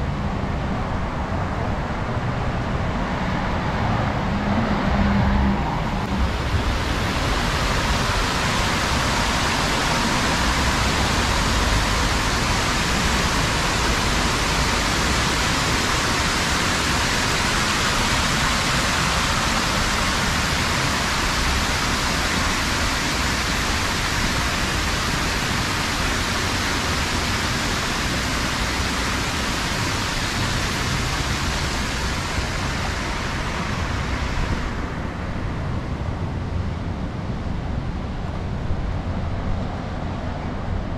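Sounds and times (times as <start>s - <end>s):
low traffic rumble: 0.0s - 40.9s
water rushing down fountain cascade: 6.0s - 35.1s.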